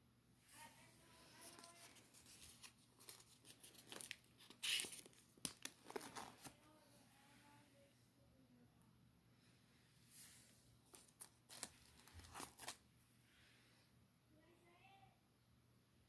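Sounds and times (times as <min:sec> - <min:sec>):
paper rustling and crinkling: 0:01.2 - 0:06.6, 0:10.3 - 0:12.8.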